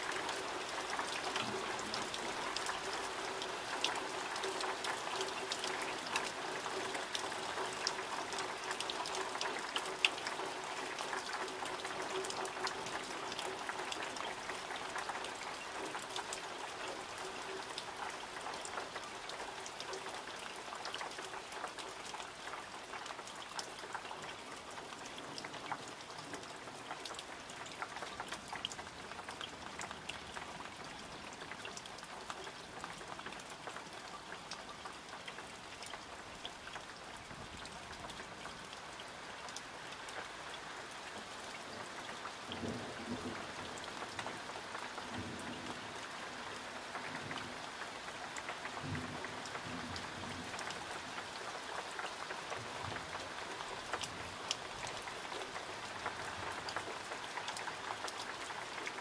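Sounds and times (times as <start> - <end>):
raindrops ticking on surfaces: 0.0 - 59.0.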